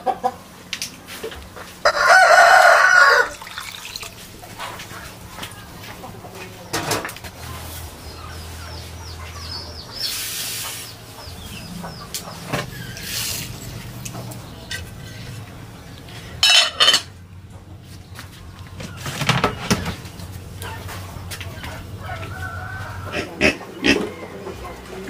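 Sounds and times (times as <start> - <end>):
chickens clucking: 0.0 - 25.0.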